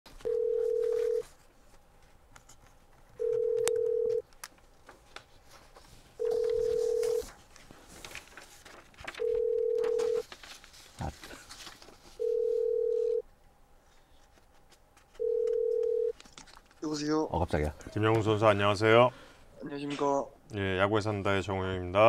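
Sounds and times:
telephone ringback tone: 0:00.2 - 0:01.2, 0:03.2 - 0:04.2, 0:06.2 - 0:07.3, 0:09.2 - 0:10.2, 0:12.2 - 0:13.2, 0:15.2 - 0:16.1.

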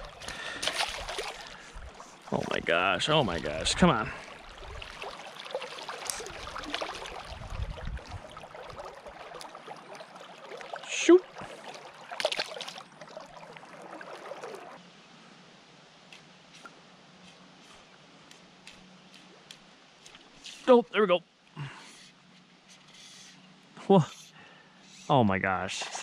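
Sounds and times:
sharp splashes: 0:00.0 - 0:14.8
river water splashing and trickling: 0:00.0 - 0:14.9, 0:17.4 - 0:23.6, 0:24.4 - 0:26.0.

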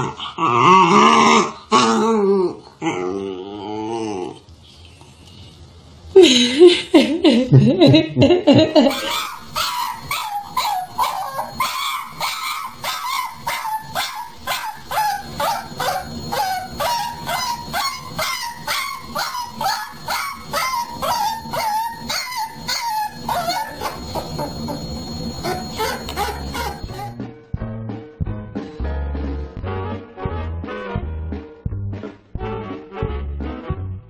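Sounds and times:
puppy yipping: 0:08.9 - 0:27.2.

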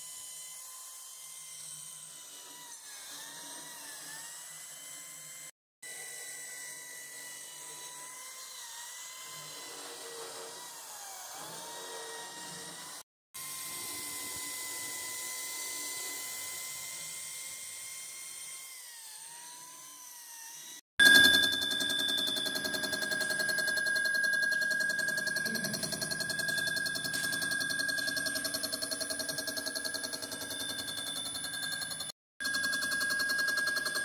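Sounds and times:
power tool spindle whining: 0:06.0 - 0:34.0
loud machine sound: 0:21.0 - 0:34.0.

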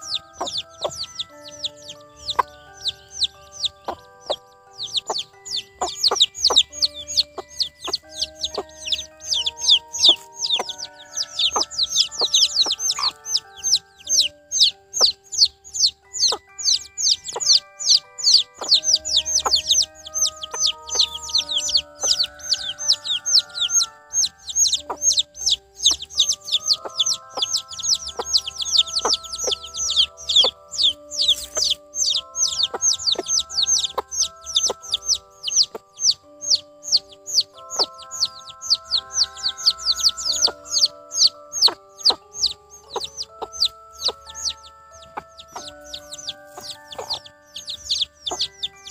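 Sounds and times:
background music: 0:00.0 - 0:48.9
chicks peeping: 0:00.0 - 0:48.9.

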